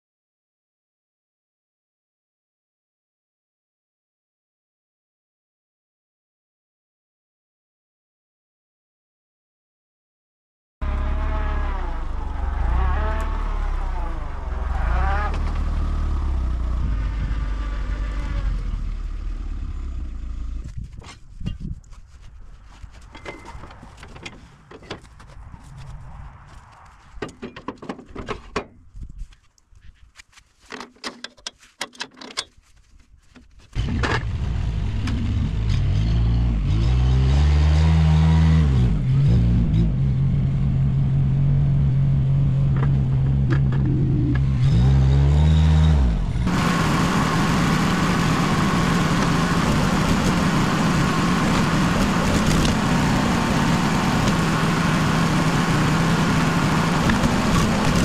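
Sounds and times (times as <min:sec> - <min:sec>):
knocks and clicks: 0:30.7 - 0:32.6, 0:42.7 - 0:44.5
log splitter engine running: 0:46.4 - 0:58.0.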